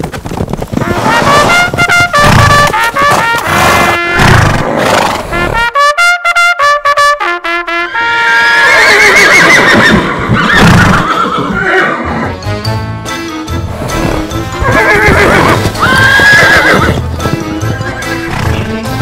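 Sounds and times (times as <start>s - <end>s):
brass music staccato notes: 0.8s - 4.6s, 5.2s - 8.4s
horse whinnying: 0.8s - 5.6s, 7.9s - 12.4s, 13.8s - 18.7s.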